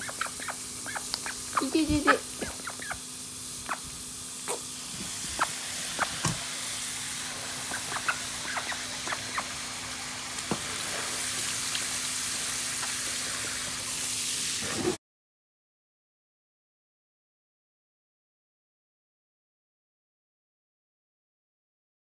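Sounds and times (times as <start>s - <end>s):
hose nozzle spraying water: 0.0s - 15.0s.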